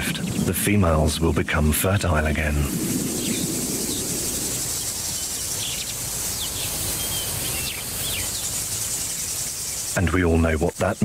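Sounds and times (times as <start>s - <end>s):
low rumble: 0.0s - 5.2s
high insect hiss: 0.0s - 11.0s.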